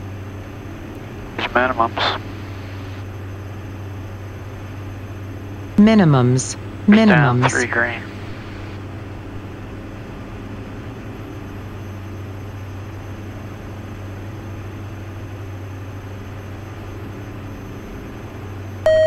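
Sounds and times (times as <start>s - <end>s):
aircraft engines droning: 0.0s - 18.9s.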